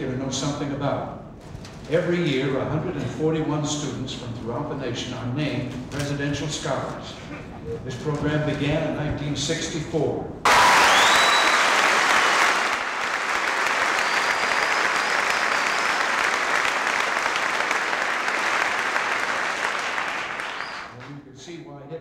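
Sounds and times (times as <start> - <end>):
audience applauding: 10.5 - 21.2.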